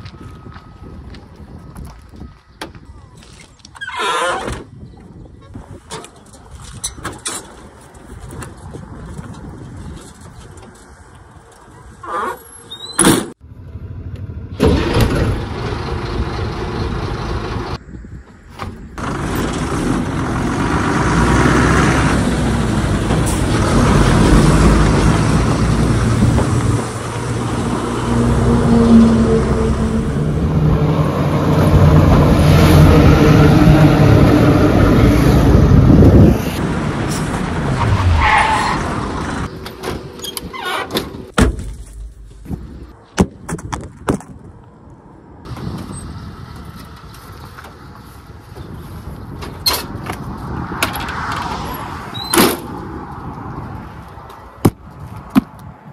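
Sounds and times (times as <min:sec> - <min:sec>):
diesel lorry engine revving: 0:13.4 - 0:17.8, 0:19.0 - 0:40.2.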